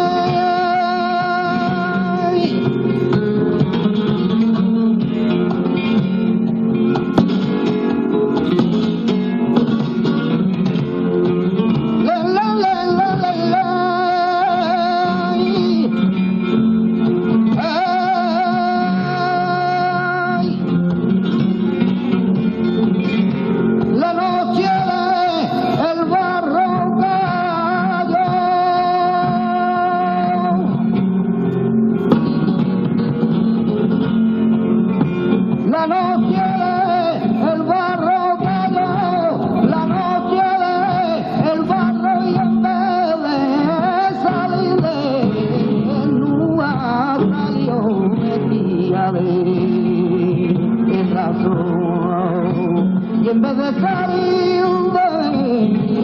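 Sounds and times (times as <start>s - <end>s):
man singing melismatic phrases: 0.0s - 2.6s, 12.0s - 16.0s, 17.6s - 20.6s, 24.0s - 30.6s, 35.7s - 52.6s
flamenco guitar: 0.0s - 56.0s.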